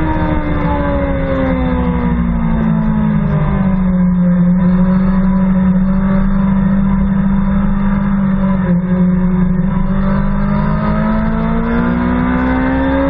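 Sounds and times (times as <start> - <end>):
motorcycle engine revs: 4.6 - 13.0.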